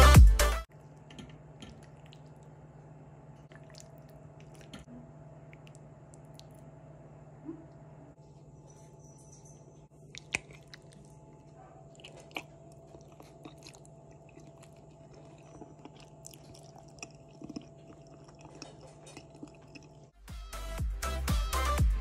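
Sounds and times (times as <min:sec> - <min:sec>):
upbeat music: 0:00.0 - 0:00.7, 0:20.3 - 0:22.0
steady low hum: 0:00.7 - 0:20.2
chewing with small clicks: 0:01.0 - 0:02.6, 0:03.4 - 0:06.7, 0:10.0 - 0:20.2.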